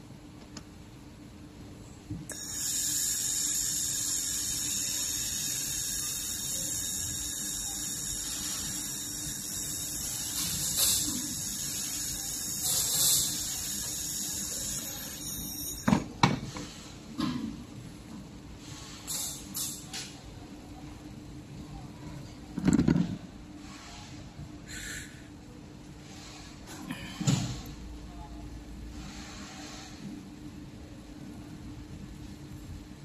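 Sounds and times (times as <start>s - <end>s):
laser welder high-pitched whine: 2.3s - 16.0s.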